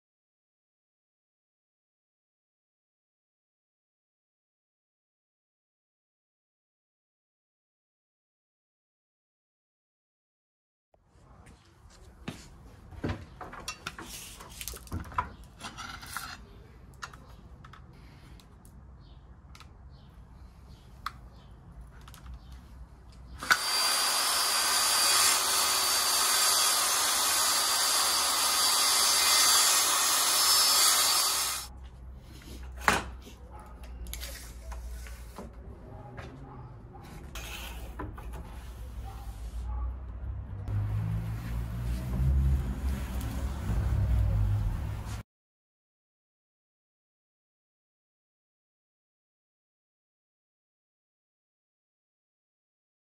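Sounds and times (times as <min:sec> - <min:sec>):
circular saw whining: 0:23.4 - 0:31.7.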